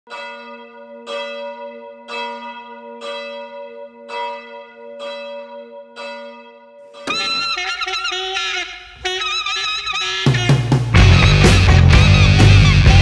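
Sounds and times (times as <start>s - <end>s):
church bell tolling: 0.1s - 9.1s.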